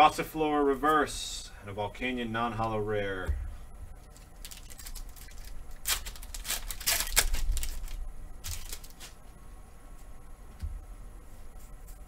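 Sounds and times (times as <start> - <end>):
foil wrapper rustling: 4.1 - 9.2.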